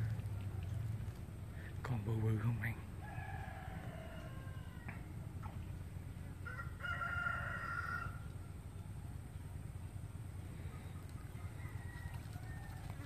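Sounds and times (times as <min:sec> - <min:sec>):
bird long drawn-out calls: 0:10.3 - 0:13.0.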